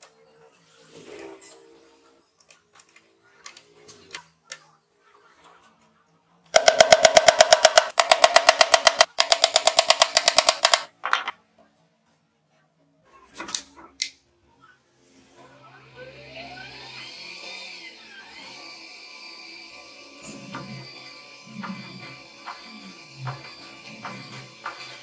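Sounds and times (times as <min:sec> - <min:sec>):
hammer tapping nails into plywood: 0:06.6 - 0:10.9.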